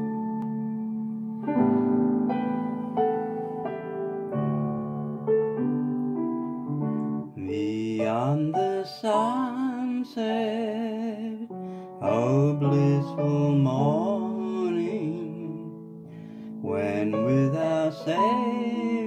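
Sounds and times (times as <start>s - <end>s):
electronic keyboard chords: 0.0s - 7.6s
man singing with vibrato: 7.4s - 15.8s, 16.6s - 19.0s.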